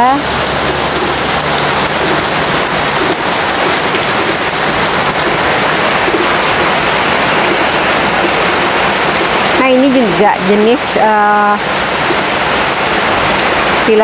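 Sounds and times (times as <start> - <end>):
rain falling: 0.0 - 14.0.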